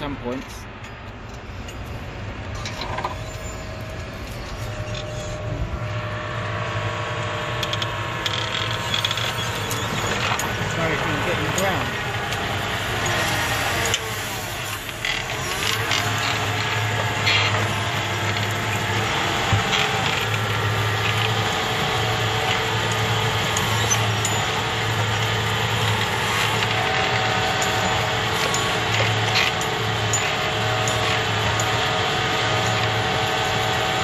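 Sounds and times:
tractor engine under load: 0.0s - 34.0s
clicks and rattles: 7.6s - 33.9s.

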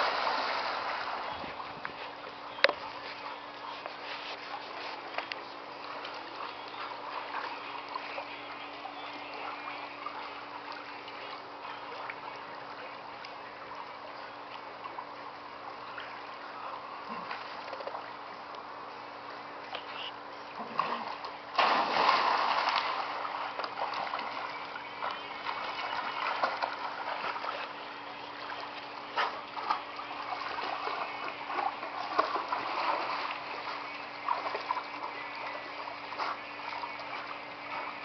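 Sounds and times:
dogs paddling in water: 0.0s - 38.0s
dog splashing into pool: 20.7s - 24.5s.

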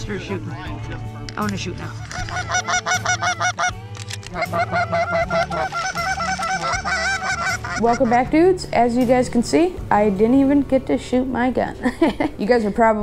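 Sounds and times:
goose honking and clucking: 1.9s - 8.4s.

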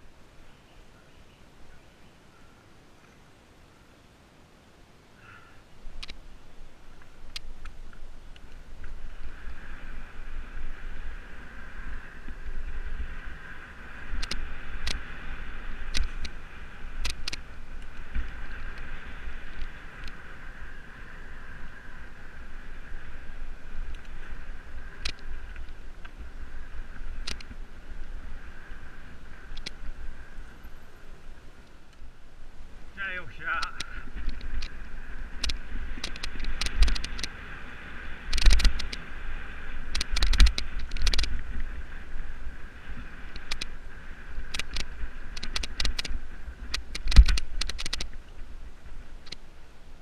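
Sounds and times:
buzzing whir of moving bike: 5.2s - 50.0s
wind rumble on microphone: 5.7s - 50.0s
bike clicks and knocks over bumps: 14.0s - 21.8s, 22.6s - 28.8s, 29.5s - 30.0s, 33.6s - 37.4s, 38.2s - 39.1s, 39.8s - 41.8s, 42.9s - 43.8s, 44.4s - 48.3s.

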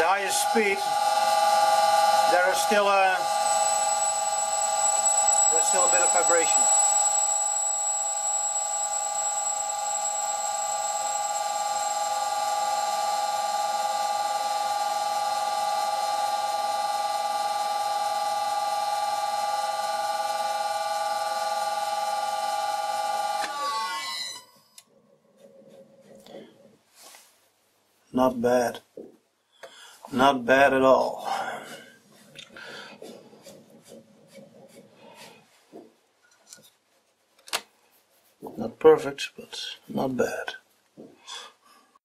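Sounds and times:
lathe spinning down: 0.0s - 24.5s
lathe whining: 0.0s - 24.6s.

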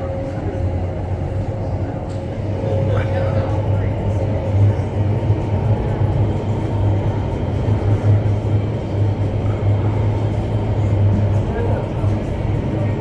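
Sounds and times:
deep pulsing hum: 0.0s - 13.0s
roar of rushing air and fans: 0.0s - 13.0s.

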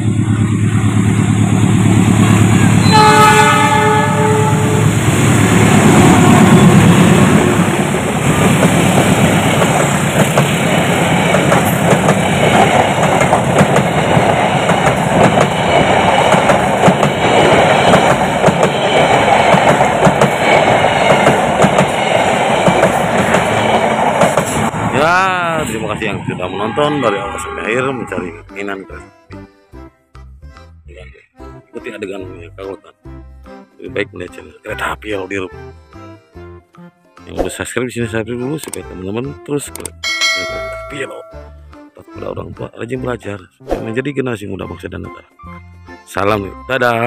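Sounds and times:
locomotive engine passing: 0.0s - 28.4s
train horn: 2.2s - 5.0s, 6.1s - 7.1s, 26.4s - 28.5s
clickety-clack of train wheels: 5.8s - 24.7s.

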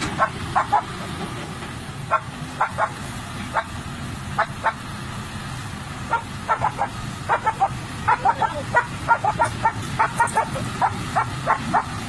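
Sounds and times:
excavator diesel engine rumble: 0.0s - 12.0s
dog barking: 0.2s - 0.8s, 2.1s - 3.7s, 6.1s - 12.0s.

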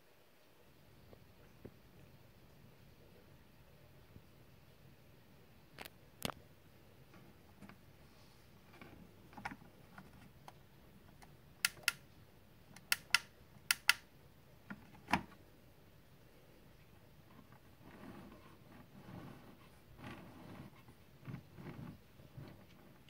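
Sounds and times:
plastic switch clicks: 11.2s - 12.0s, 12.8s - 14.0s.

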